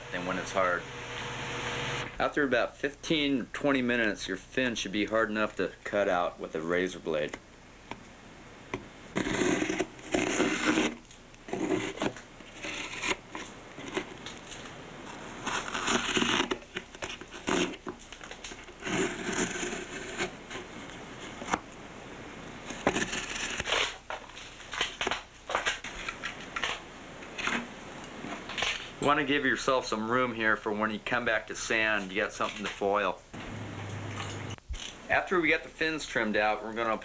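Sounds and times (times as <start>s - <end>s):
razor blade scraping fibreglass: 9.2s - 14.1s, 15.1s - 20.7s, 22.6s - 24.0s.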